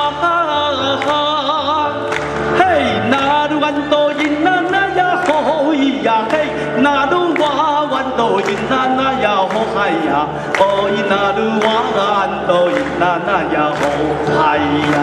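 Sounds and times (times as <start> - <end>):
choir singing folk song: 8.0 - 15.0.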